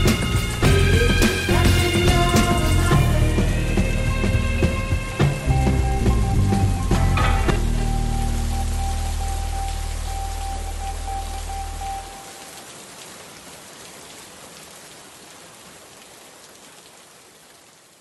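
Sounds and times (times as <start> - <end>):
held bass note: 0.0 - 12.1
steady rain hiss: 0.0 - 18.0
high steady tone: 3.9 - 12.3.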